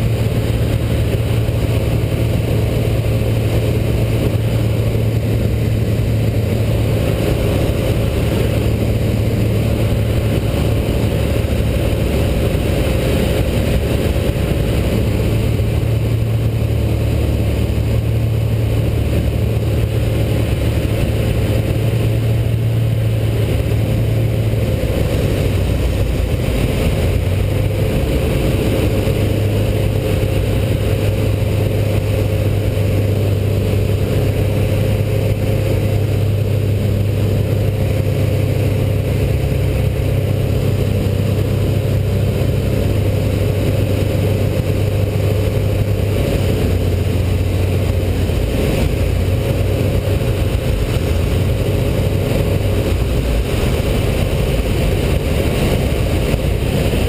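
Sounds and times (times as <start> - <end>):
aircraft engine and propeller drone: 0.0 - 57.0.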